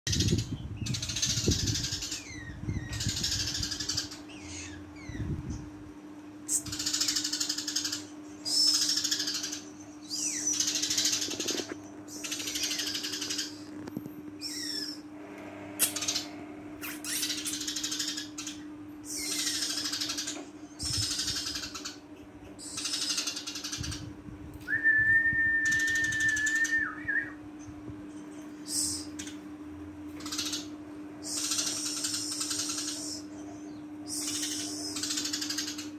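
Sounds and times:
steady low hum: 0.1 - 35.9
sparrow chattering chirps: 6.5 - 13.8, 15.8 - 24.1, 30.2 - 35.9.

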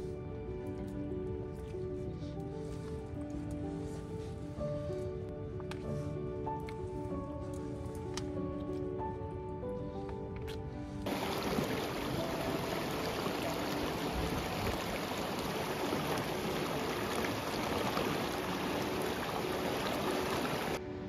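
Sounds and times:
stream water rushing: 11.1 - 20.8.

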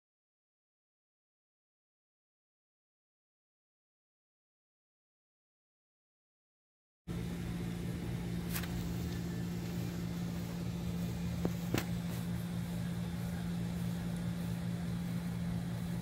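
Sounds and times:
low mechanical hum: 7.1 - 16.0.

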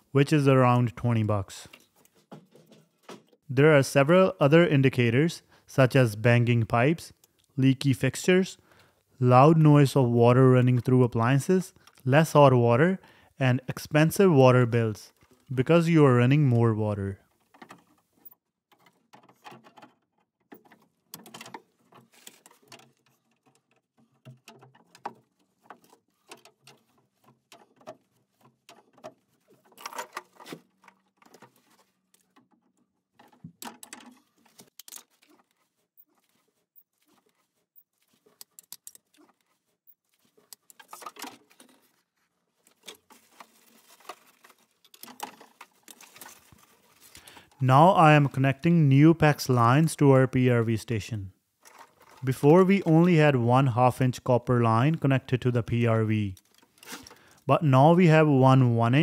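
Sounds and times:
hands handling pipe fittings: 17.3 - 47.6, 51.6 - 53.2, 56.3 - 57.5.

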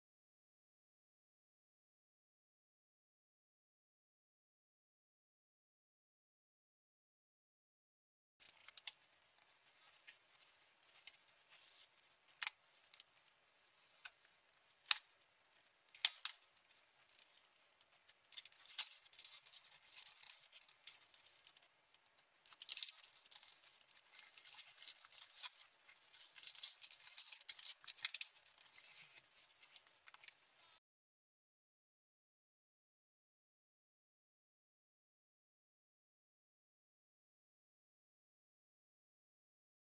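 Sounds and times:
paper rustling and crinkling: 8.4 - 21.7, 22.4 - 30.8.

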